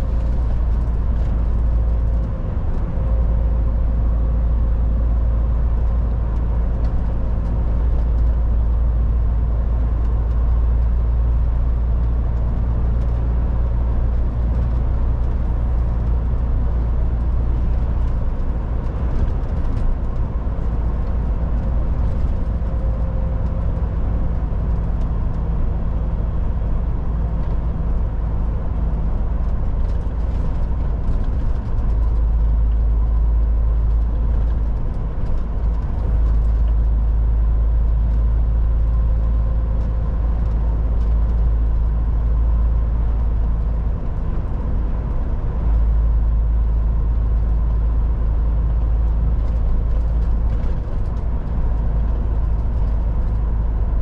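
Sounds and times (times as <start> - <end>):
diesel truck engine drone: 0.0 - 54.0
road and tyre noise: 0.0 - 54.0.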